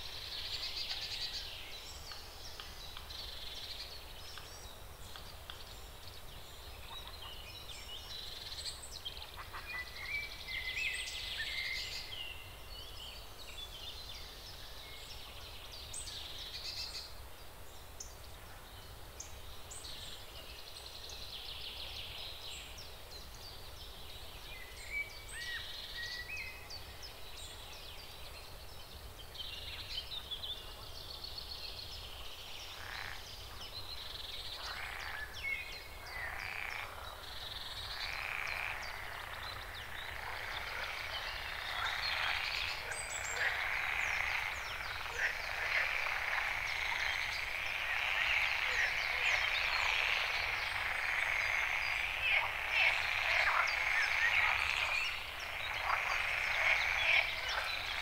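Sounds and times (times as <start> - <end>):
frogs croaking chorus: 0.0 - 13.4, 31.9 - 58.0.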